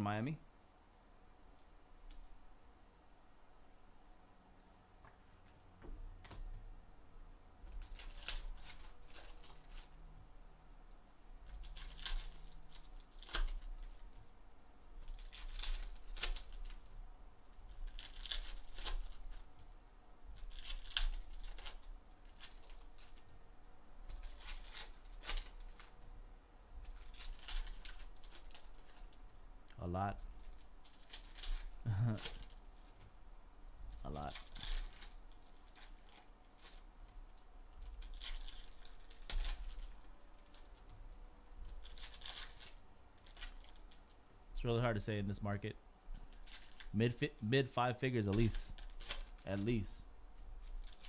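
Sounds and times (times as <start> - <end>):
foil wrappers torn and crinkled: 7.7 - 10.0, 11.4 - 14.2, 15.0 - 16.9, 17.7 - 19.6, 20.3 - 23.3, 24.1 - 25.9, 26.8 - 29.2, 30.2 - 33.0, 33.9 - 40.9, 41.6 - 44.2, 46.2 - 47.0, 48.3 - 49.8, 50.4 - 51.0.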